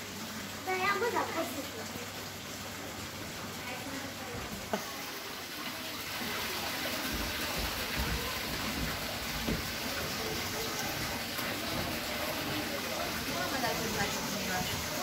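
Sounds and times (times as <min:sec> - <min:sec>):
running water rushing: 0:00.0 - 0:15.0.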